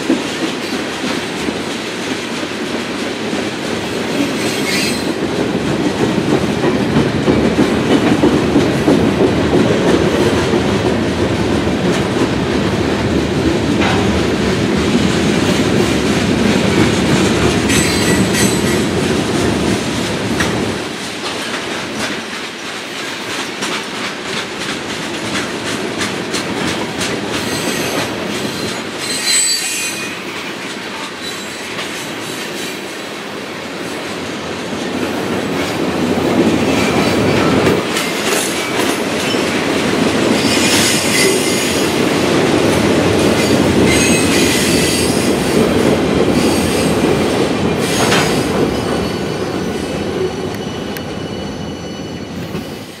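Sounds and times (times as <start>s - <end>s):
steel wheels rumbling on rail: 0.0s - 53.0s
high-pitched wheel squeals: 29.0s - 30.2s, 50.3s - 52.7s.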